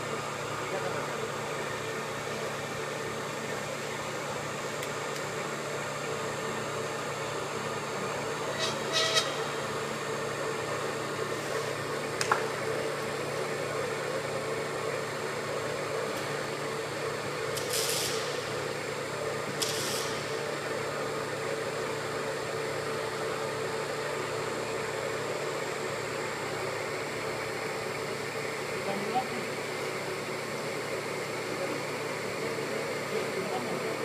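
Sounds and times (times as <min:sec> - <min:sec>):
clay press mechanical hum: 0:00.0 - 0:34.0.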